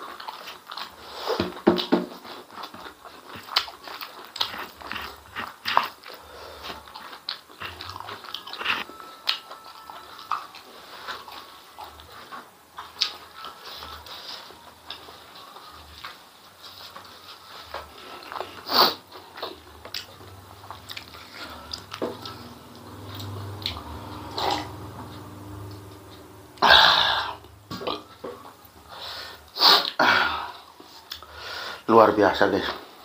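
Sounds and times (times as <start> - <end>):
chewing and mouth clicks: 0.0 - 26.1, 30.8 - 31.3
loud breath or throat sounds: 26.6 - 27.5.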